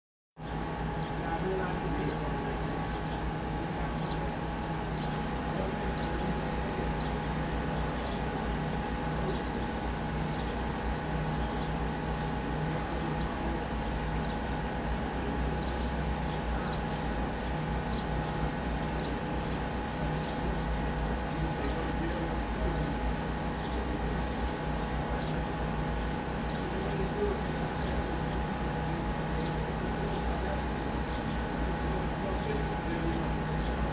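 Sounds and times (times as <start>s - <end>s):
bird chirping: 3.9s - 4.3s, 4.9s - 5.2s, 13.1s - 14.4s.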